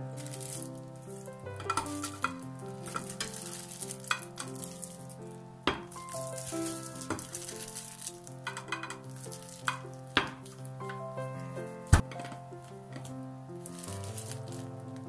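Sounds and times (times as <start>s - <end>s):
rustling handling noise: 0.0s - 15.0s
soft background music: 0.0s - 15.0s.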